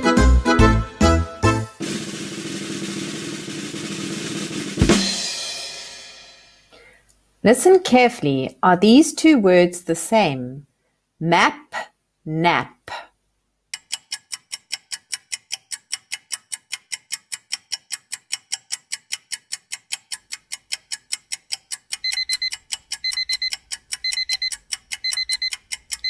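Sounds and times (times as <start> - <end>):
clock ticking: 13.7 - 26.0
alarm clock beeping: 22.0 - 26.0.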